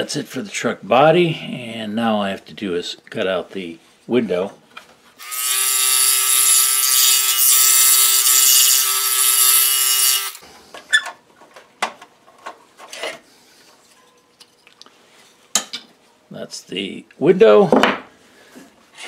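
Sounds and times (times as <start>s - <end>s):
scroll saw cutting wood: 5.2s - 10.4s.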